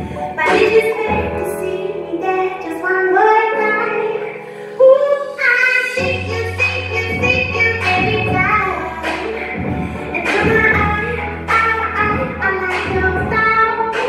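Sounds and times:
woman singing: 0:00.0 - 0:14.0
low bass notes: 0:06.0 - 0:14.0.

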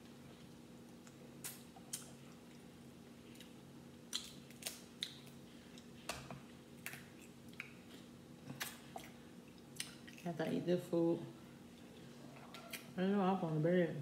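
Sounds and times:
chewing: 0:11.7 - 0:12.9.

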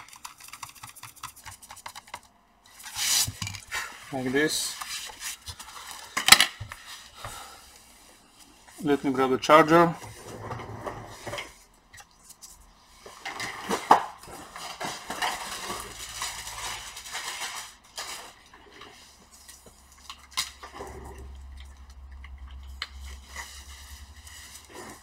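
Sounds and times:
hard objects clinking and clattering: 0:13.2 - 0:19.0.

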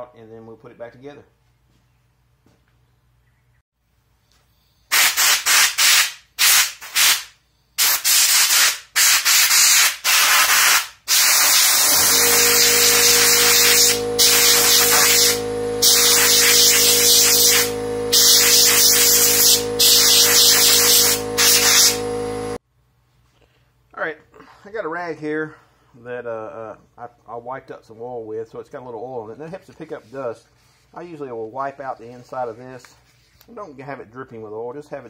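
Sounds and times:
compressed air blasts hissing: 0:04.9 - 0:22.6
motor hum: 0:11.5 - 0:22.6.

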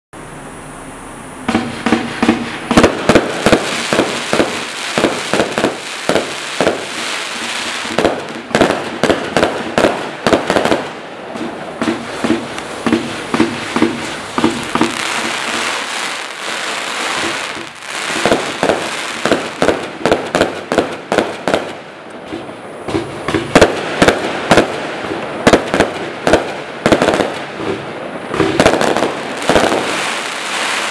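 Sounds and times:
firework hiss: 0:00.4 - 0:30.9
firework bangs: 0:01.4 - 0:30.9.

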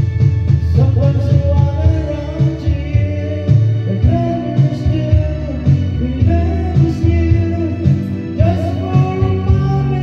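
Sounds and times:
backing track with steady beat: 0:00.0 - 0:10.0
man singing into a microphone: 0:00.6 - 0:10.0.

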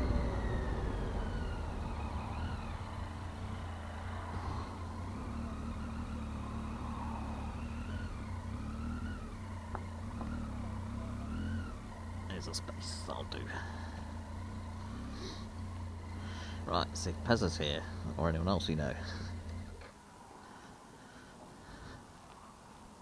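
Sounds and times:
motorcycle engine at low revs: 0:00.0 - 0:22.0.

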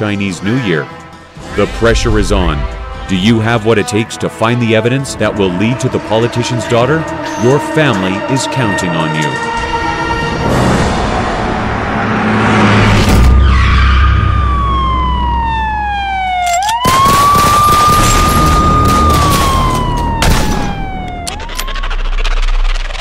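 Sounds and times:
low rumble: 0:01.4 - 0:03.8
police siren wailing: 0:05.6 - 0:11.9, 0:13.3 - 0:22.7.

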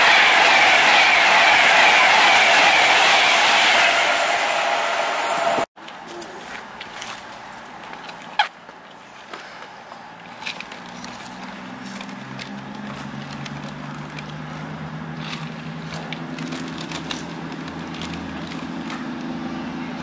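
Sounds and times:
diesel train engine droning: 0:00.0 - 0:05.7.

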